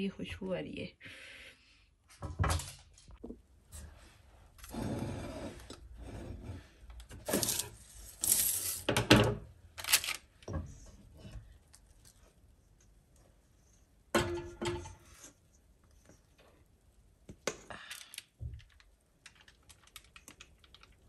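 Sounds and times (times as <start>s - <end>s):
metal bowl and utensils clattering: 14.2s - 15.3s.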